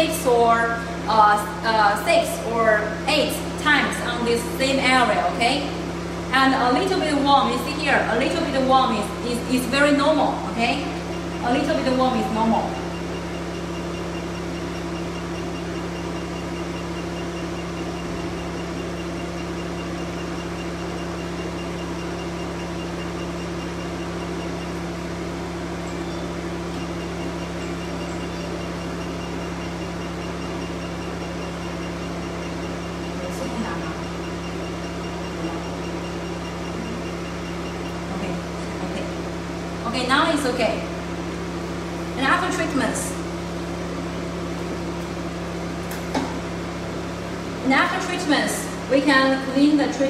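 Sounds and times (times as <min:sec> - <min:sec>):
high-pitched pulsing: 0:00.0 - 0:39.2
machine hum: 0:00.0 - 0:50.0.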